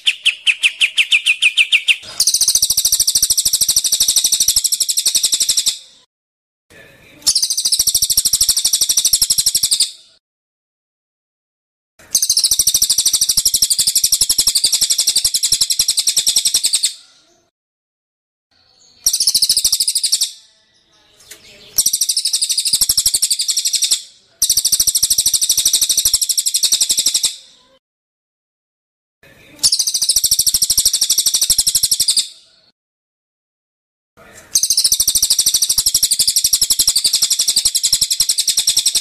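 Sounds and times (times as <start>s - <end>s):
songbird rattling trills: 34.6s - 39.0s.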